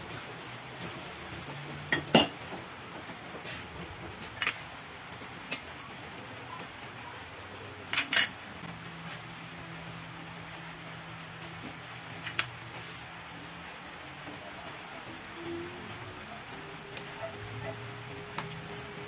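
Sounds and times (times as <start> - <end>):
aluminium cookware clinking: 1.9 - 2.4.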